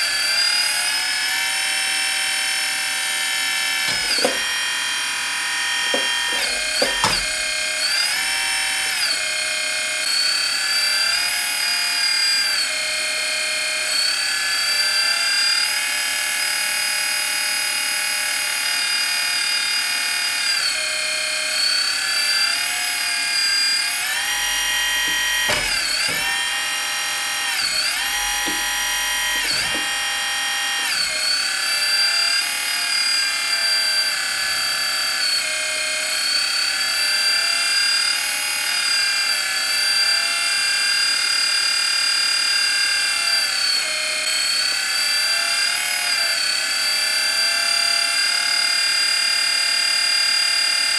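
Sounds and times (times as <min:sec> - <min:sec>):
hydraulic pump whining: 0:00.0 - 0:14.5, 0:19.8 - 0:37.4
short knocks: 0:03.9 - 0:04.6, 0:05.8 - 0:07.7, 0:24.2 - 0:26.9, 0:27.6 - 0:30.5.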